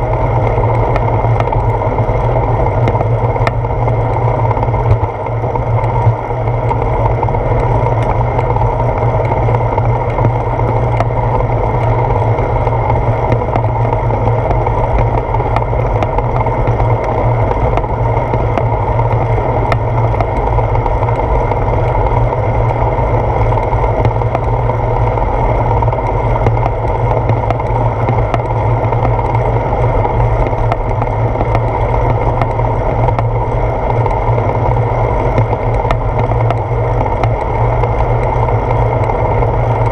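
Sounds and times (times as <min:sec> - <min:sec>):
bicycle road rumble: 0:00.0 - 0:39.9
faint ticks: 0:23.4 - 0:39.9.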